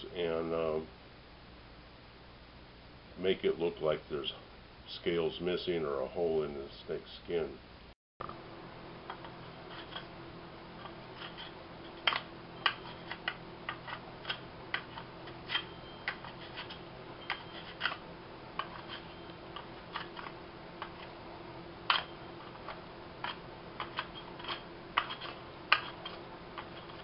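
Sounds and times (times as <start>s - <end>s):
steady low hum: 0.0s - 27.0s
carving tool chipping wood: 12.7s - 18.0s, 23.2s - 27.0s.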